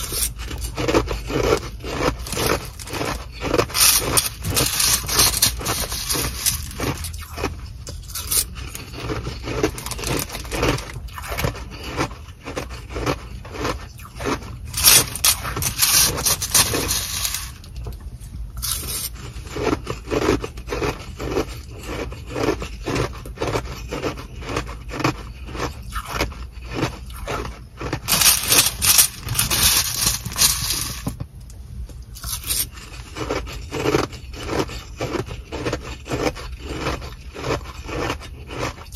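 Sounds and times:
plastic bag crinkling: 0.0 - 7.5, 8.2 - 11.0, 14.2 - 17.7, 27.4 - 31.2
plastic spoon scraping ice: 0.0 - 17.9, 18.6 - 31.2, 32.2 - 38.9
ice being chewed: 0.0 - 31.2, 32.2 - 38.9.

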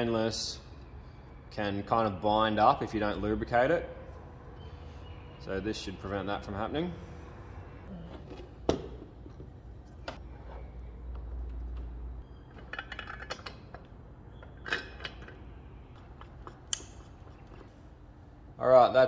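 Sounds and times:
metallic clinks and taps: 12.5 - 15.4, 16.2 - 17.7.

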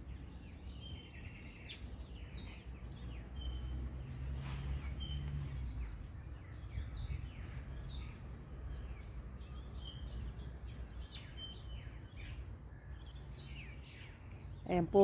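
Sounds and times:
low background rumble: 0.0 - 15.0
small birds chirping: 0.0 - 15.0.

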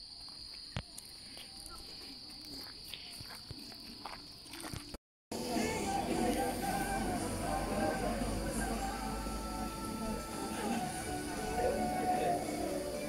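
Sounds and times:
crickets chirring: 0.0 - 5.0
background music: 5.3 - 13.0.

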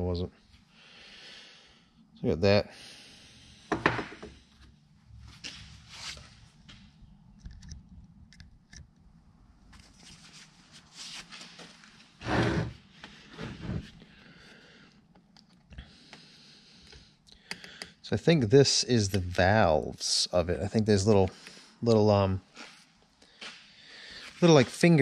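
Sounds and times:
knock on workbench: 3.7 - 4.3.

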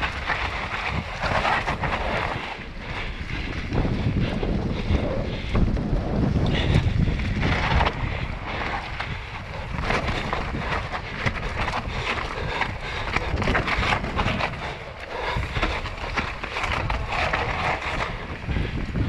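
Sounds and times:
bike rattling over bumps: 0.0 - 19.0
tyres rolling over dirt and leaves: 0.0 - 19.0
wind buffeting microphone: 0.0 - 19.0.

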